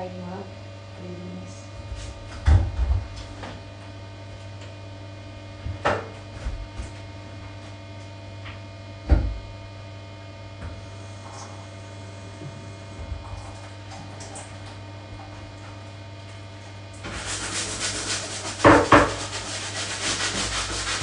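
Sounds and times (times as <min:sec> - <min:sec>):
steady low hum: 0:00.0 - 0:21.0
knocks and bumps in bathtub: 0:02.3 - 0:03.3, 0:09.0 - 0:09.5.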